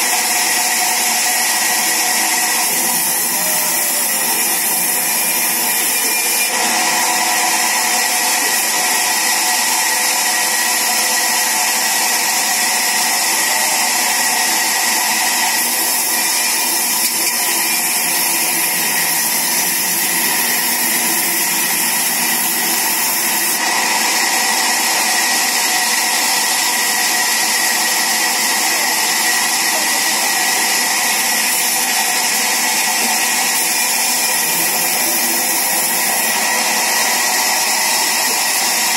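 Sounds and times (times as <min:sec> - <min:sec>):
high hiss from saw cut: 0:00.0 - 0:11.4, 0:13.0 - 0:23.7, 0:24.4 - 0:38.9
band saw running: 0:00.0 - 0:38.9.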